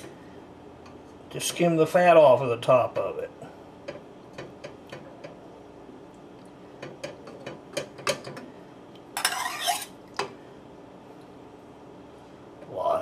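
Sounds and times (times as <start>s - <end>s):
spatula scraping: 9.2s - 10.0s.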